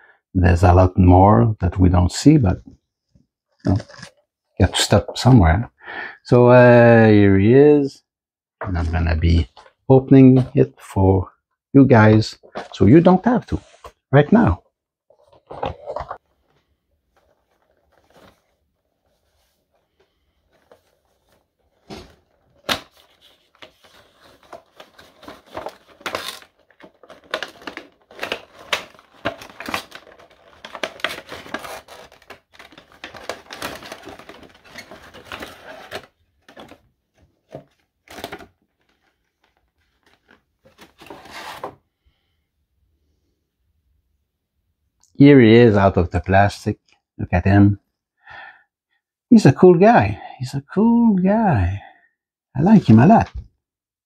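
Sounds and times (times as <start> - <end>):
plastic crinkling: 17.1 - 41.6
cardboard rustling and clicking: 17.1 - 41.8.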